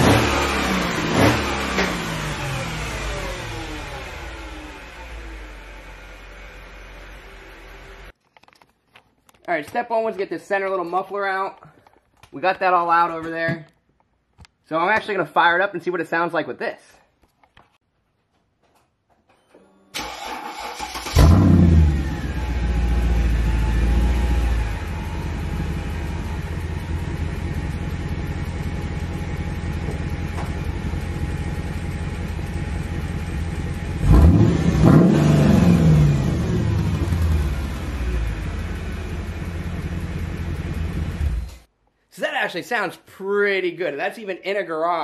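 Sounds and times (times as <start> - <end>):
car engine idling and revving: 0.0 - 8.2, 20.0 - 41.7.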